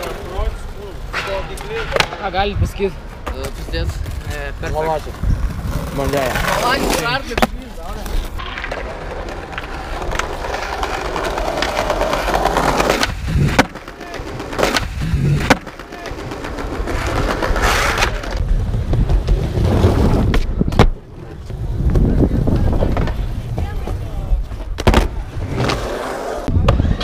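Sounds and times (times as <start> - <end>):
skateboard wheels rolling on paving: 0.0 - 27.0
skateboard clacks: 6.0 - 27.0.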